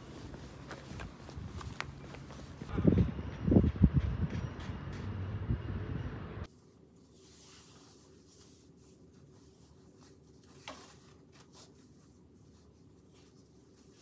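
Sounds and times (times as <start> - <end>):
fabric rustling: 0.0 - 2.7, 6.5 - 14.0.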